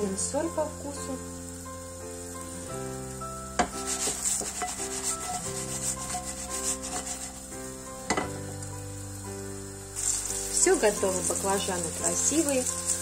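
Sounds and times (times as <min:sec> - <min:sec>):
food scraped in frying pan: 0:03.7 - 0:07.5, 0:10.0 - 0:13.0
sharp knock on pan: 0:08.1 - 0:08.4.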